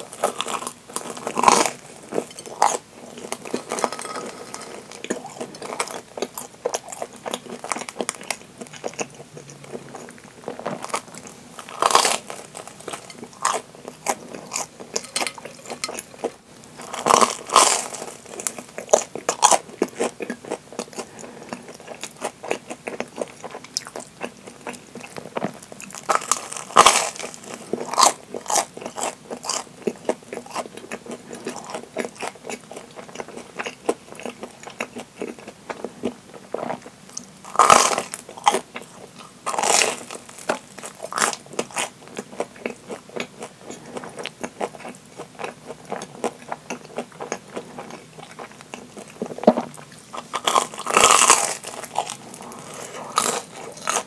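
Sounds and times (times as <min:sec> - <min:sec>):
small chewing crackles: 0:00.0 - 0:54.0
crunching bites of fried bread: 0:36.7 - 0:54.0.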